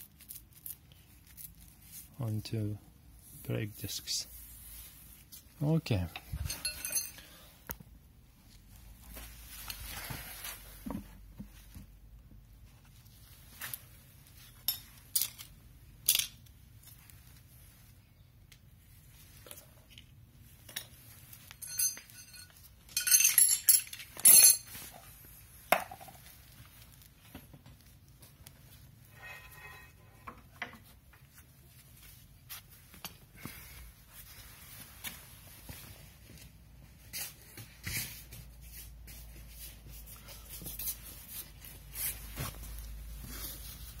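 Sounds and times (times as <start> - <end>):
metallic clinks of tools: 6.4 - 7.4, 21.5 - 24.7.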